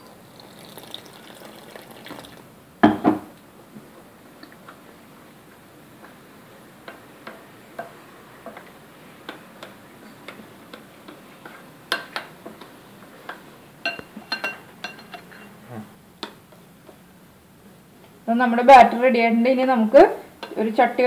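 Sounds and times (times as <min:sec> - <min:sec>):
metal utensil clinking on glass bowl: 0:13.8 - 0:15.5.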